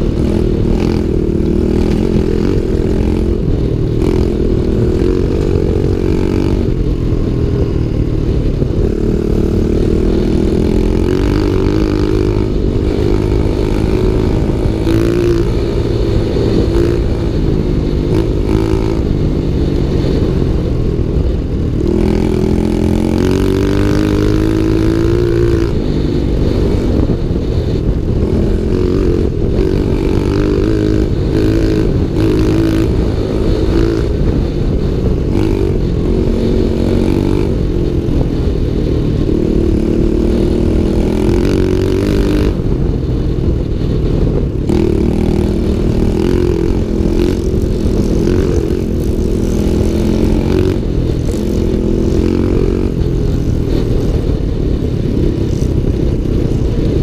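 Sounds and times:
small motorbike engine revving: 0.0s - 57.0s.

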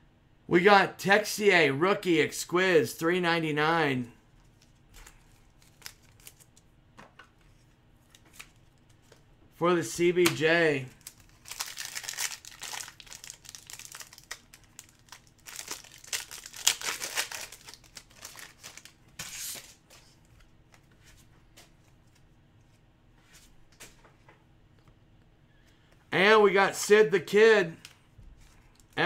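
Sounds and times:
wrapper being torn and crinkled: 4.6s - 6.6s, 10.9s - 19.0s.

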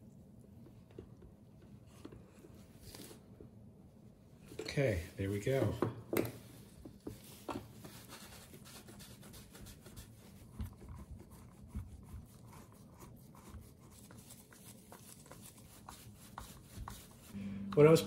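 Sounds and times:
gloved hands rubbing plastic: 11.1s - 17.4s.

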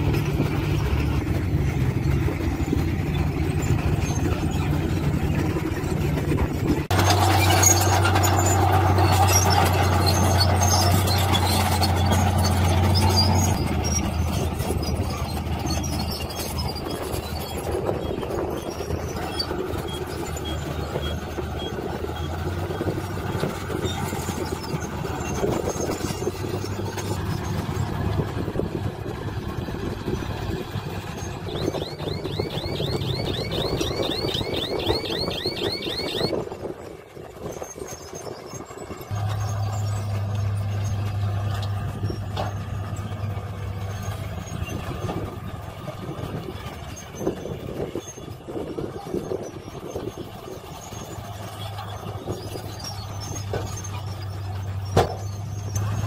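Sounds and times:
diesel truck engines running: 0.0s - 56.0s
truck reversing alarm chirps: 30.3s - 36.4s.

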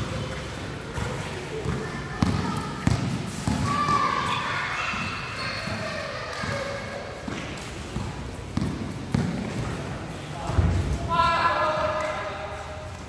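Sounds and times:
basketball bouncing on court: 0.1s - 4.2s, 7.2s - 9.8s
sneakers squeaking: 0.1s - 11.0s.

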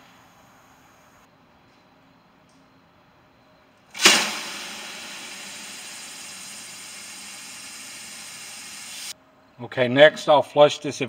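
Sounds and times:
spray can hissing through hose: 4.0s - 9.1s.

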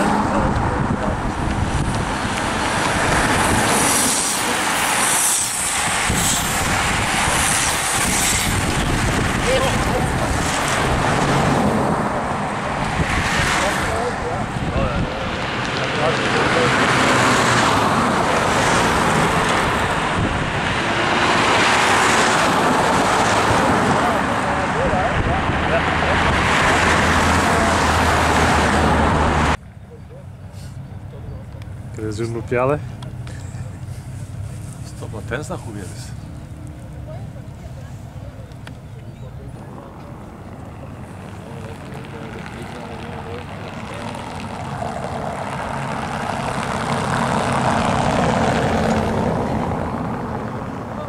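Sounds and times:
wind on microphone: 0.0s - 15.8s, 17.0s - 29.6s
car driving past: 0.0s - 29.6s
tyre and engine noise: 0.0s - 51.0s
racing bicycles hissing: 3.0s - 9.1s.

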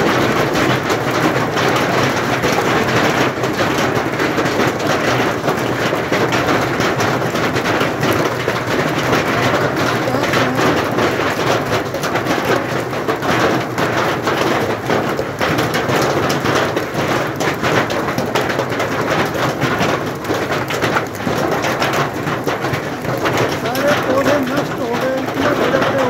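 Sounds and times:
heavy rain and hail falling: 0.0s - 26.0s.

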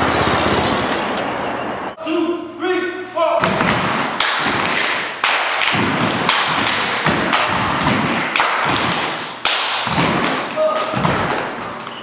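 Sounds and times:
stomping on wooden floor: 3.4s - 5.0s, 5.6s - 9.2s, 9.8s - 12.0s
people clapping: 4.1s - 11.6s.

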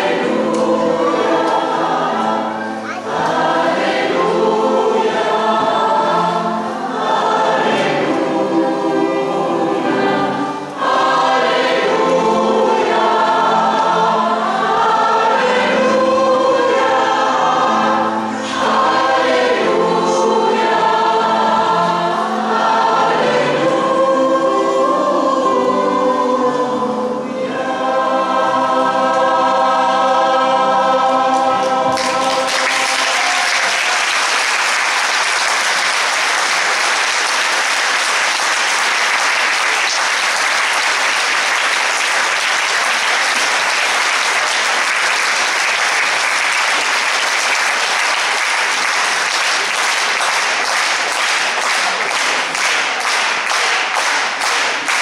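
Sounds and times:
choir singing: 0.0s - 55.0s
audience applause: 31.6s - 55.0s.

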